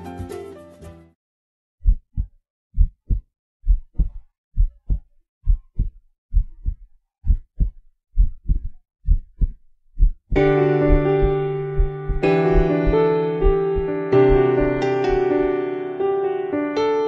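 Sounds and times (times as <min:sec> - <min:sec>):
piano music: 0:00.0 - 0:01.2, 0:10.4 - 0:17.0
heartbeat thumps: 0:01.8 - 0:14.5.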